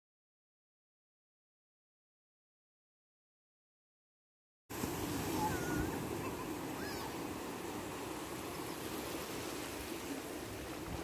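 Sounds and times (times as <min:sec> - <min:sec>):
sea waves washing up beach: 0:04.7 - 0:11.0.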